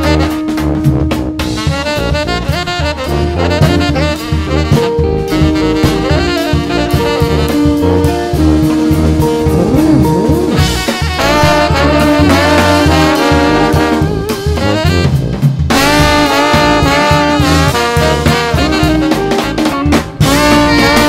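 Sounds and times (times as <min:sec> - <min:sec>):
drum kit: 0:00.0 - 0:21.0
electric guitar: 0:00.0 - 0:21.0
tenor saxophone line: 0:00.0 - 0:21.0
trombone and trumpet: 0:00.0 - 0:21.0
sousaphone: 0:09.4 - 0:12.6.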